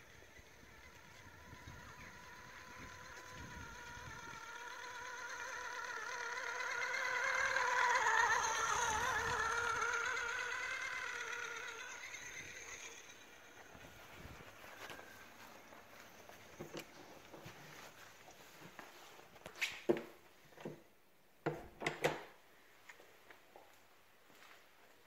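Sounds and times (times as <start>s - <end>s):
rc car electric motor whining: 0.0s - 18.0s.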